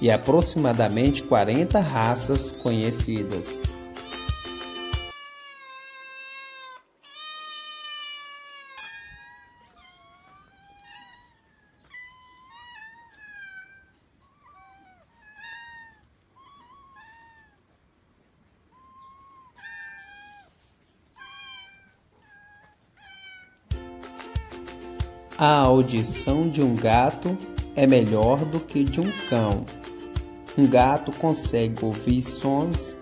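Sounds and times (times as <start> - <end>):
cats meowing: 3.9 - 17.8, 18.7 - 24.8, 28.1 - 29.7.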